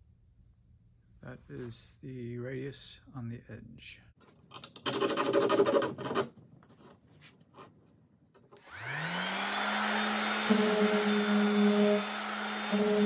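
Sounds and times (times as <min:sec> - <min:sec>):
orbital sander whining: 0:08.6 - 0:13.0.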